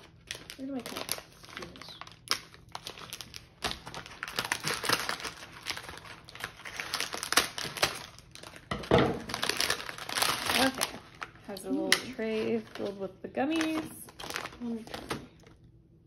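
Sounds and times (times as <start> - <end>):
scissors cutting plastic: 0.0 - 15.3
plastic bag crinkling: 0.0 - 15.7.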